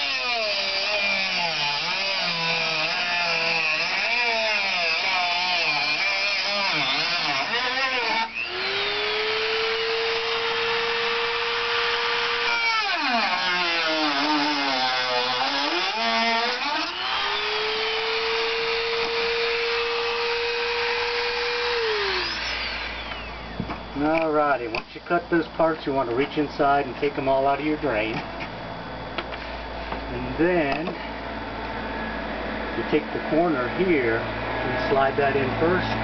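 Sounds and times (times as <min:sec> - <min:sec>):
rotary tool cutting plastic: 0:00.0 - 0:23.5.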